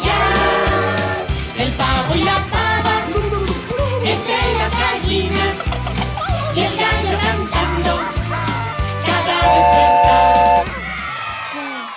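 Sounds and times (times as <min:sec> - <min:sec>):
children's song music: 0:00.0 - 0:11.0
loud held note: 0:09.3 - 0:10.7.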